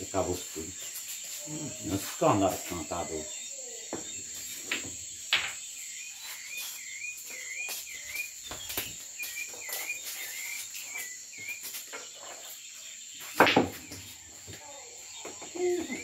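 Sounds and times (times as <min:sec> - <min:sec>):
crickets chirping: 0:00.0 - 0:16.0
wavering chirp: 0:01.0 - 0:11.8.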